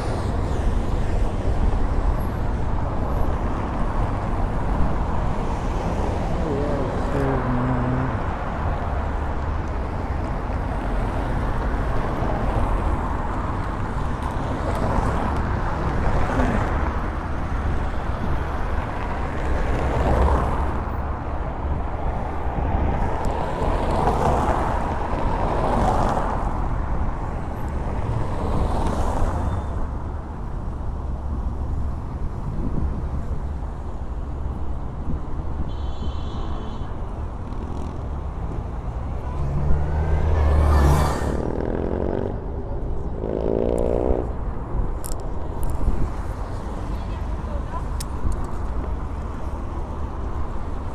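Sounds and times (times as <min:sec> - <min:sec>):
cars and scooters driving past: 0:36.9 - 0:45.2.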